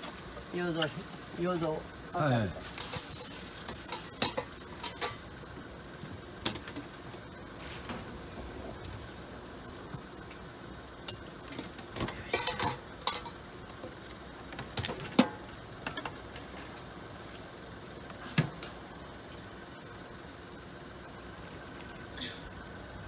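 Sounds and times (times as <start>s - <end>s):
ladle and bowls clinking: 12.0s - 13.4s.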